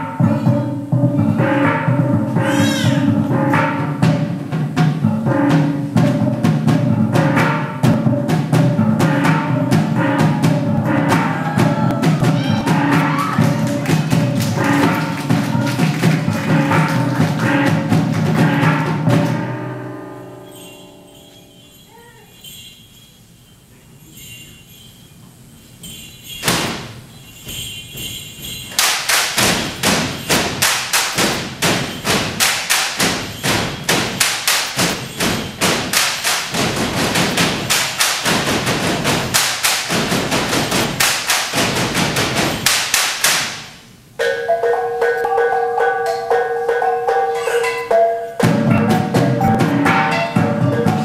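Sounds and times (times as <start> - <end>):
deep drum beats: 0.0 - 20.2, 28.8 - 42.8, 44.2 - 51.0
gongs playing a melody: 0.0 - 22.8, 44.2 - 51.0
bamboo poles clacking: 26.4 - 51.0.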